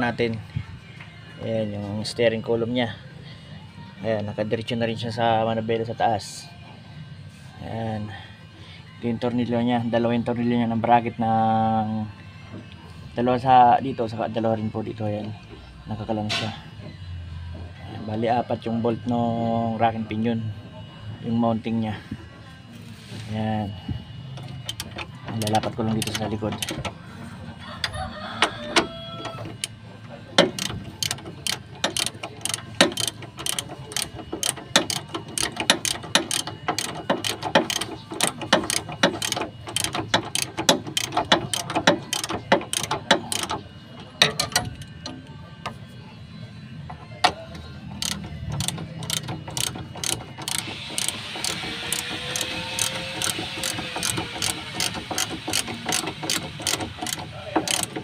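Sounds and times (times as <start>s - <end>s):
ratchet wrench clicking: 24.4s - 27.0s, 27.8s - 29.8s, 30.4s - 43.6s, 44.2s - 45.2s, 46.9s - 58.0s.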